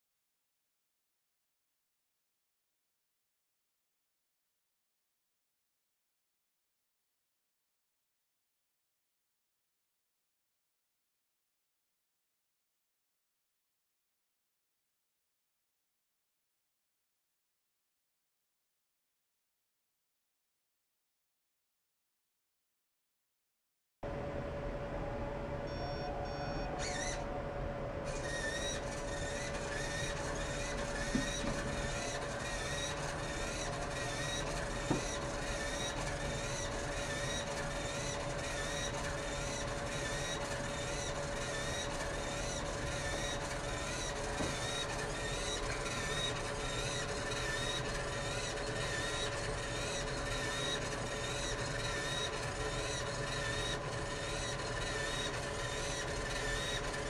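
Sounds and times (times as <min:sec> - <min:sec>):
electrical hum: 0:24.1 - 0:57.0
robot beeps: 0:25.7 - 0:27.2.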